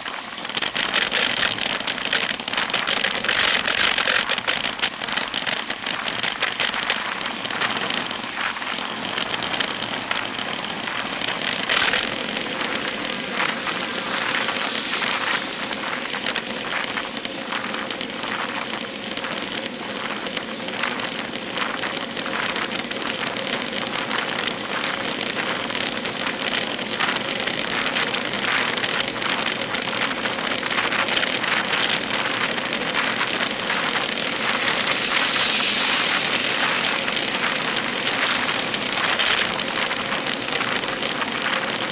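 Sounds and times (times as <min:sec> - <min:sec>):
tyre ticks on road: 0:00.0 - 0:41.9
wind rushing hiss: 0:12.8 - 0:16.4, 0:33.1 - 0:39.2.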